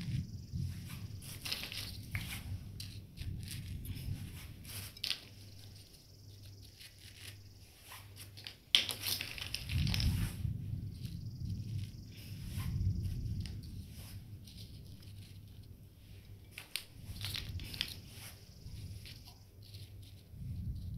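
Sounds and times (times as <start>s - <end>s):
plastic bricks clicking on sand: 1.0s - 4.2s, 8.2s - 13.8s, 16.4s - 20.9s.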